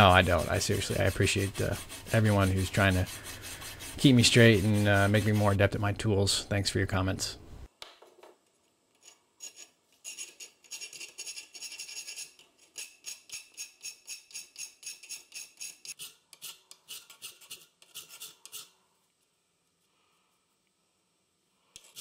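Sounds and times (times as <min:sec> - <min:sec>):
file scraping steel blade: 0:00.0 - 0:05.7, 0:09.0 - 0:18.8.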